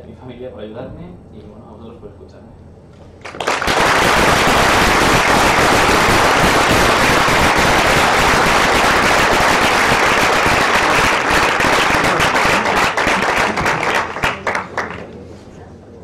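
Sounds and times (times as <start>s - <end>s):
audience applauding: 3.2s - 15.1s.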